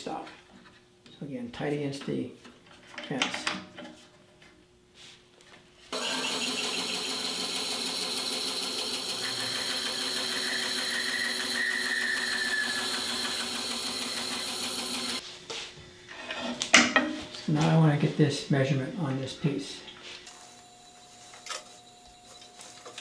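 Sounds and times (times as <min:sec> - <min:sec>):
band saw running: 0:05.9 - 0:15.2
saw blade whine cutting wood: 0:05.9 - 0:15.2.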